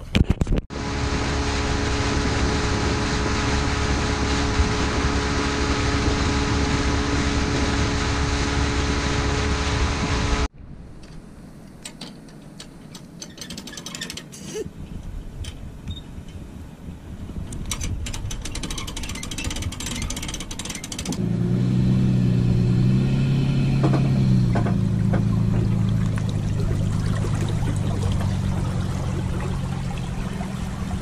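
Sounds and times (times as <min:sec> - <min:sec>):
wind: 0:00.0 - 0:31.0
outboard motor running: 0:00.7 - 0:10.5, 0:18.3 - 0:31.0
water rushing: 0:00.7 - 0:10.5, 0:21.1 - 0:31.0
light clicks and rattles: 0:11.0 - 0:16.4, 0:17.5 - 0:21.2.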